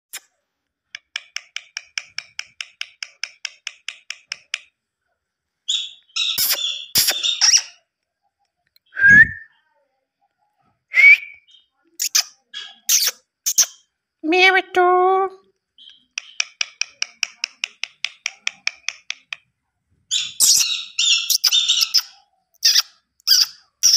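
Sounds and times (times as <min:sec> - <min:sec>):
parrot chirping and whistling: 0:05.7 - 0:07.8, 0:20.1 - 0:23.9.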